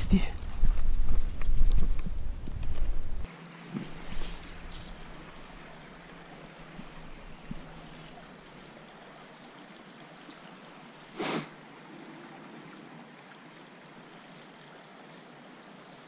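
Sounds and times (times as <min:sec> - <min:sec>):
wind on microphone: 0:00.0 - 0:03.3
flowing river water: 0:00.0 - 0:16.0.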